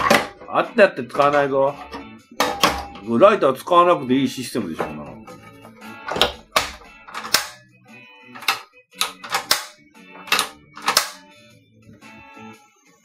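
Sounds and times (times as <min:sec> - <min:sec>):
gas stove igniter clicking: 0:06.2 - 0:07.6, 0:08.4 - 0:11.2.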